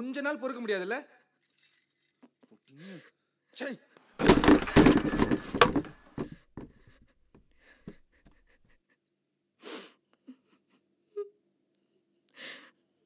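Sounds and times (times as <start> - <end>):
plastic chairs clattering crash: 4.2 - 6.7.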